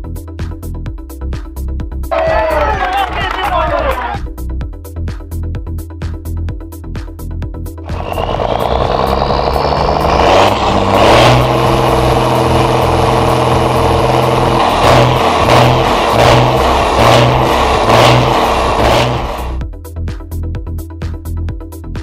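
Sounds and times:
truck diesel engine revving: 7.9 - 19.6.

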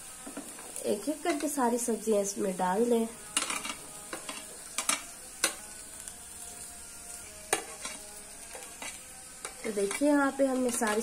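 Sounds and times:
onions sizzling in oil: 0.0 - 11.0
spoon clicking on plate and pan: 3.3 - 5.6, 7.5 - 11.0.

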